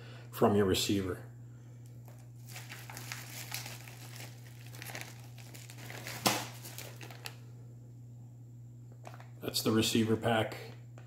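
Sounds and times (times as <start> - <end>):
plastic packaging crinkling: 2.0 - 7.4.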